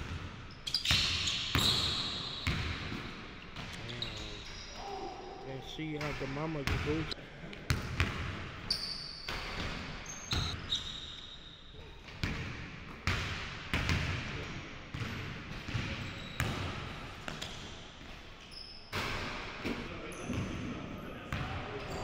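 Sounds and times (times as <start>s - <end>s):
sneakers squeaking: 0.0s - 13.2s, 14.9s - 22.0s
basketball bouncing on wooden floor: 12.2s - 14.2s.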